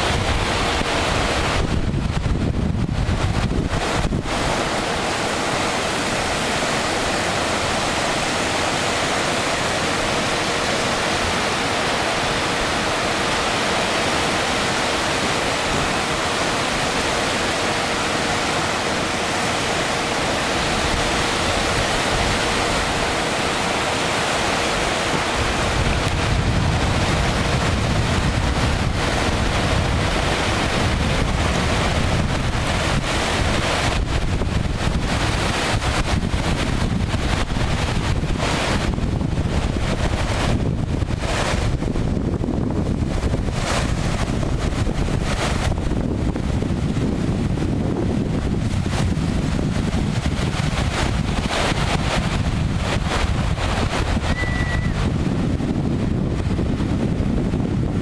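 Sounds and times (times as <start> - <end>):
surf washing onto sandy beach: 0.0 - 58.0
wind buffeting microphone: 0.0 - 58.0.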